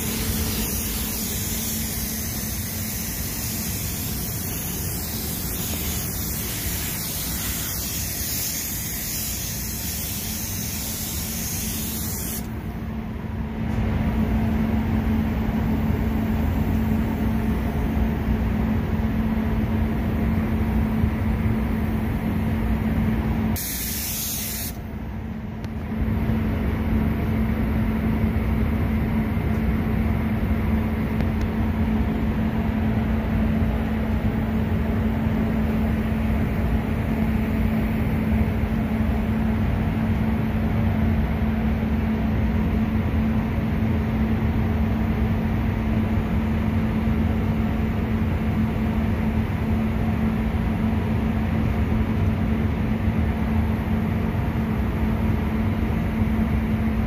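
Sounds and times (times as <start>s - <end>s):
spray gun hissing: 0.0s - 12.5s, 23.6s - 24.8s
ventilation hum and rumble: 0.0s - 57.0s.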